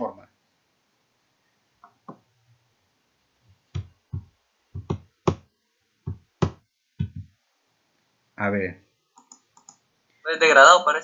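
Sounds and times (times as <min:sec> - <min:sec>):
mouse and keyboard clicks: 0:09.2 - 0:09.8.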